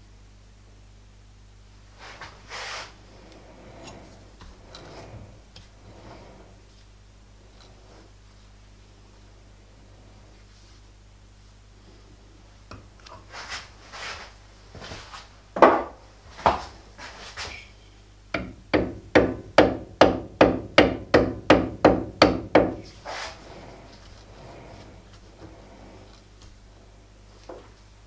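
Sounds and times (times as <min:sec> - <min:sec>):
hammer tapping on metal: 0:18.4 - 0:22.8.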